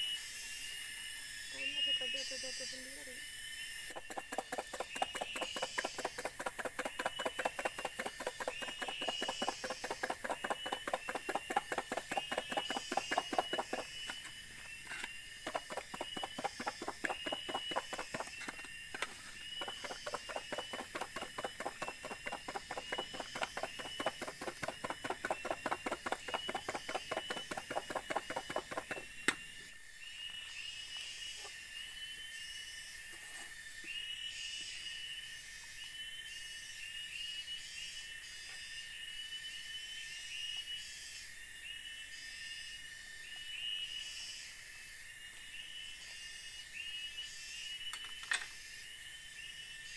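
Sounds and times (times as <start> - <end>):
high chirping: 4.0 - 29.0
sponge scrubbing cooking pot: 19.6 - 29.0.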